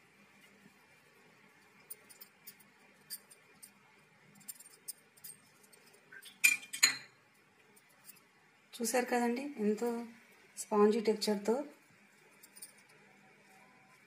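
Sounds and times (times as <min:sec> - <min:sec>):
plate clinking on counter: 0:06.4 - 0:07.2.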